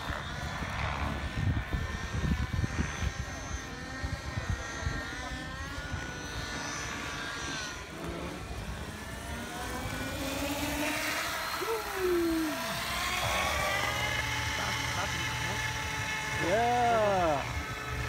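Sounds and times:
helicopter whine: 0.0 - 18.0
tone gliding downward: 5.6 - 18.0.

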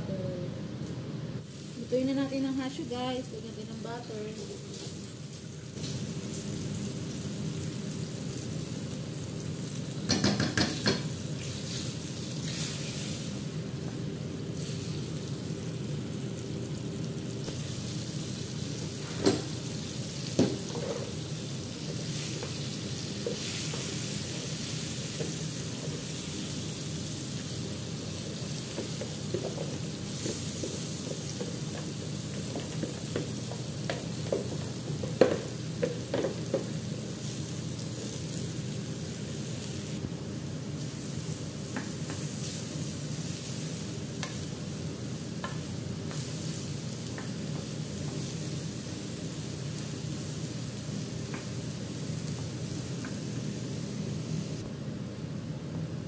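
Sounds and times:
butter sizzling in a frying pan: 1.4 - 54.6
onions frying: 1.4 - 54.8
wooden spoon knocking on pan: 10.1 - 11.1, 20.4 - 21.1, 28.7 - 36.8.

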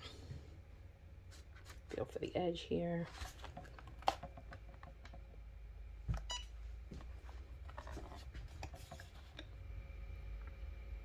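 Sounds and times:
heat press beep: 6.2 - 6.5.

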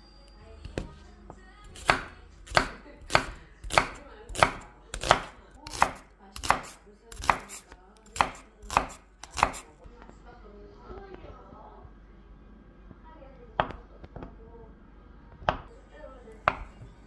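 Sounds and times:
knife chopping on wooden board: 1.7 - 9.7, 16.4 - 16.8.

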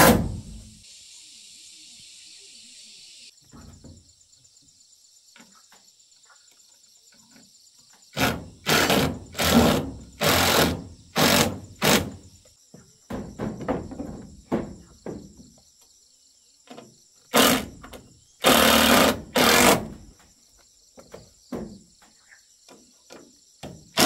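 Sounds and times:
cordless drill driving screws: 8.2 - 12.0, 18.4 - 19.8.

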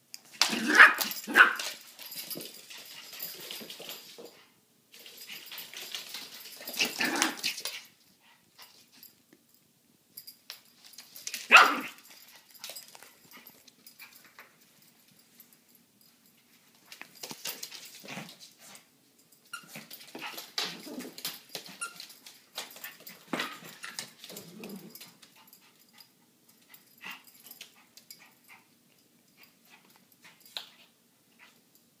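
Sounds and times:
dog claws clicking on floor: 0.1 - 7.9, 16.7 - 18.8, 19.5 - 25.8
toy rustling: 0.1 - 9.2, 10.2 - 28.7.

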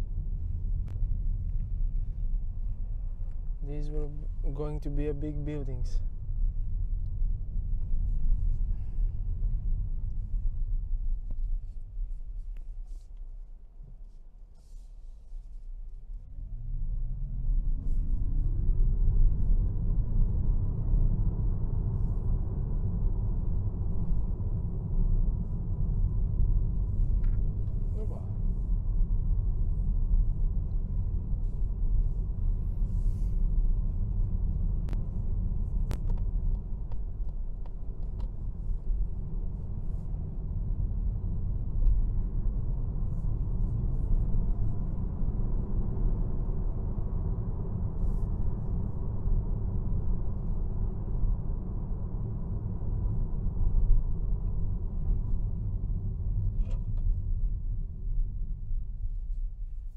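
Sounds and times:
road and tyre noise: 0.0 - 59.9.

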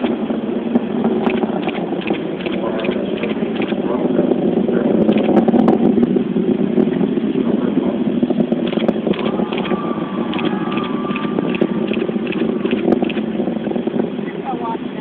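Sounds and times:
distant rocket rumble with crackle: 0.0 - 15.0.

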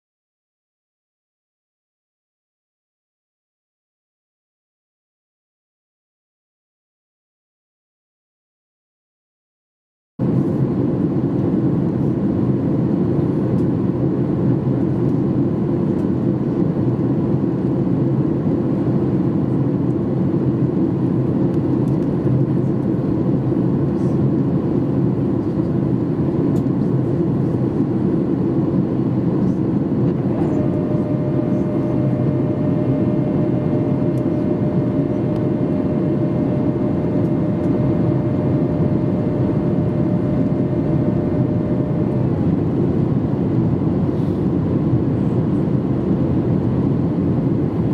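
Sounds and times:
airliner cabin airflow and engines: 10.2 - 47.9
steady high whine: 10.2 - 47.9.

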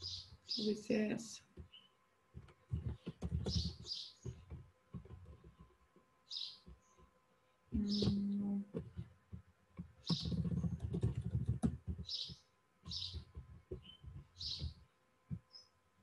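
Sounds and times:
bird chirping: 0.0 - 7.1, 7.7 - 9.0, 10.0 - 15.8
typing on computer keyboard: 2.4 - 5.6, 9.8 - 12.3.

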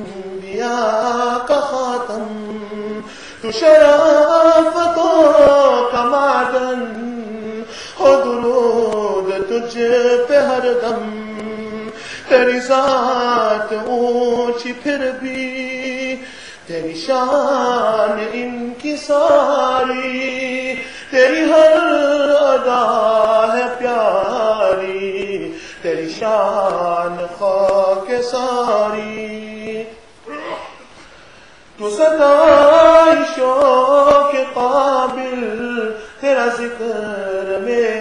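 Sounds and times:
man singing devotional song: 0.0 - 38.0.

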